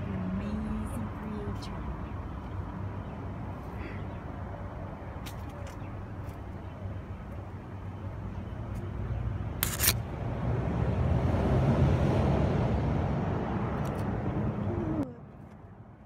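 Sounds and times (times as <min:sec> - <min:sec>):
vehicle passing: 0:09.1 - 0:15.0.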